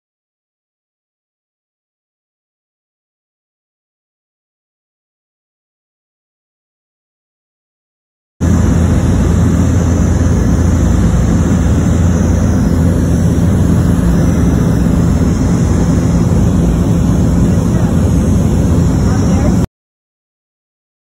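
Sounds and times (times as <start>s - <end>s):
airplane propeller engines droning: 8.4s - 19.7s.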